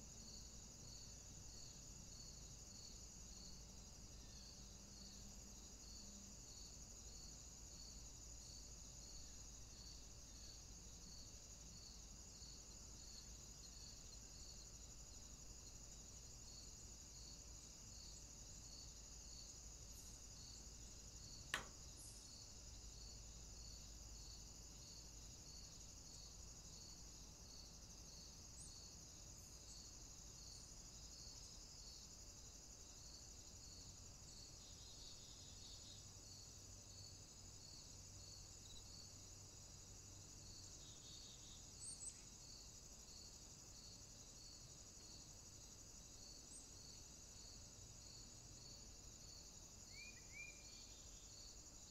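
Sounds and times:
sharp click: 21.5 - 21.8.

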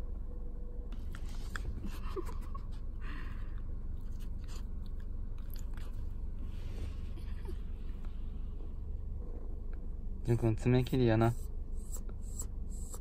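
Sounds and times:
dog licking with wet clicks: 4.5 - 6.1.

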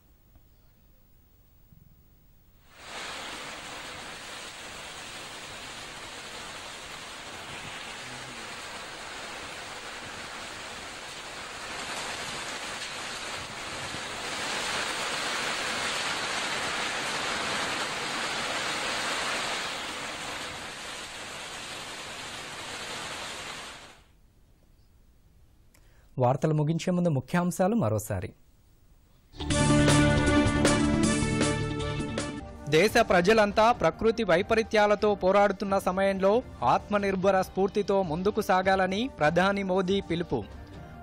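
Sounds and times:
heavy rain pouring: 2.7 - 24.1.

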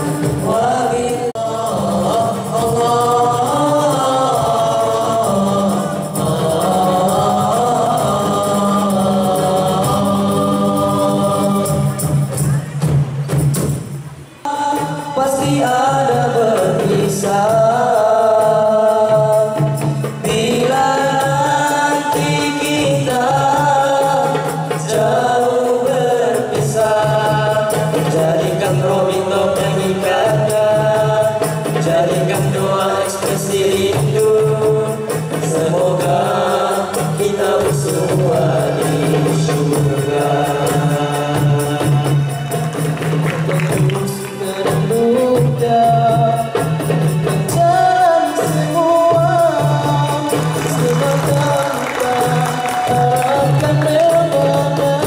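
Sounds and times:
boys singing into microphones: 0.0 - 55.0
hand drum: 0.0 - 55.0.

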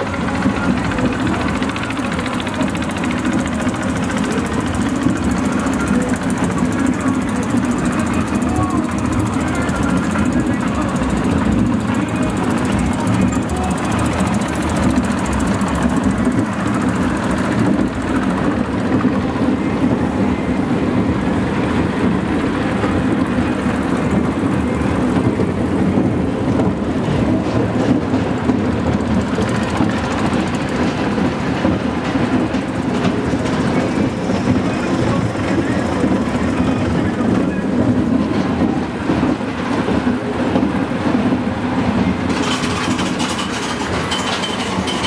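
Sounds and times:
coaster wheels rumbling on rails: 0.0 - 45.0.

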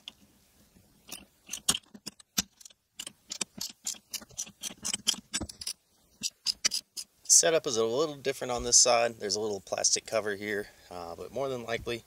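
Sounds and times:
ratchet metallic clicks: 1.1 - 7.1.

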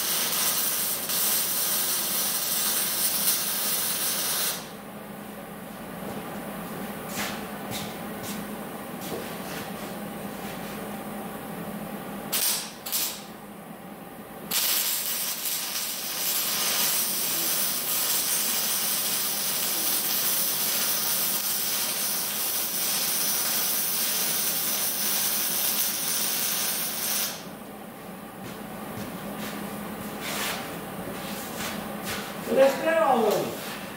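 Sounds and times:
arc welding crackling hiss: 0.0 - 4.7, 12.3 - 13.3, 14.5 - 27.5
welding arc strikes: 0.0 - 4.7, 12.3 - 13.3, 14.5 - 27.5.

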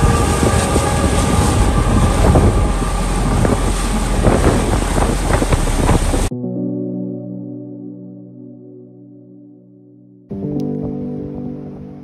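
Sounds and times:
wind buffeting microphone: 0.0 - 6.3.

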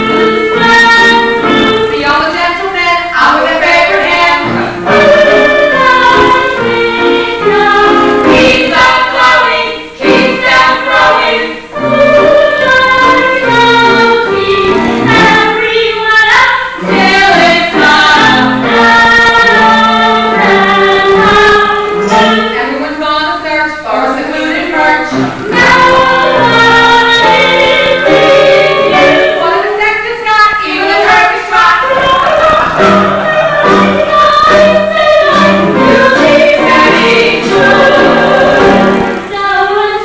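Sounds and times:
stage cast singing in chorus: 0.0 - 23.1, 23.8 - 29.7, 30.5 - 40.0.

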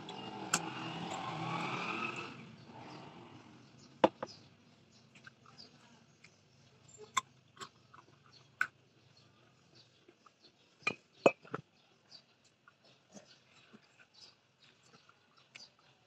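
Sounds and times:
clicks and taps of eating: 5.1 - 5.6.

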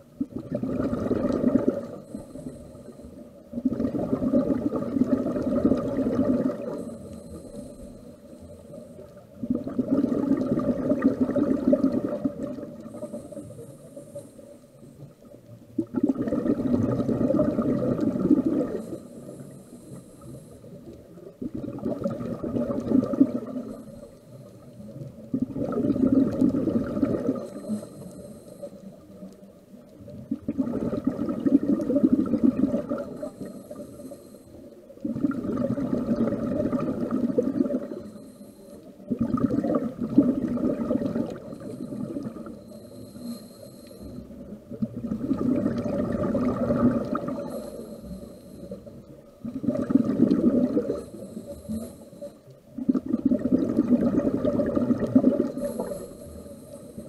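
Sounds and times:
bubbles gurgling underwater: 0.0 - 2.6, 3.4 - 7.7, 8.7 - 13.4, 15.0 - 19.0, 20.8 - 27.8, 28.8 - 33.9, 34.9 - 38.1, 38.8 - 42.8, 44.1 - 51.9, 52.6 - 57.0
regulator hiss: 12.8 - 15.2, 18.7 - 21.2, 27.3 - 29.3, 33.0 - 35.0, 41.3 - 44.6, 47.2 - 49.3, 50.9 - 52.6, 55.5 - 57.0.

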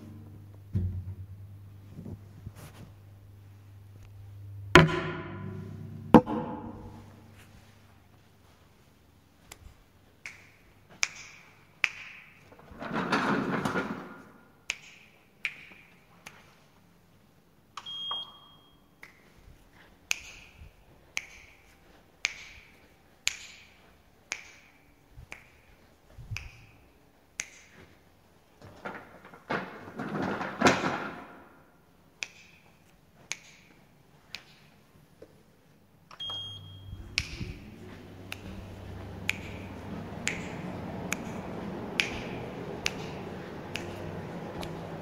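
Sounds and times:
harsh noise swells: 36.8 - 45.0.

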